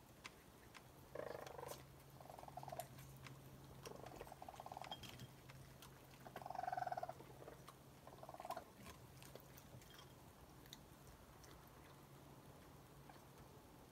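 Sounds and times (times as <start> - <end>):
small eating clicks: 0.0 - 13.9
raccoons chirping: 0.3 - 10.1.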